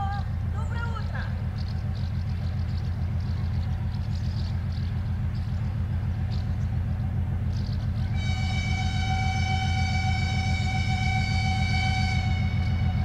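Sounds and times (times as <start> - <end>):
diesel locomotive engine rumbling: 0.0 - 13.0
locomotive horn: 8.0 - 13.0.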